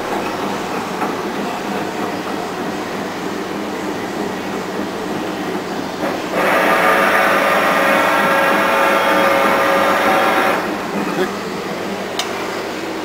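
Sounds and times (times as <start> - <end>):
lathe carriage traverse whine: 0.0 - 13.0
lathe running: 0.0 - 13.0.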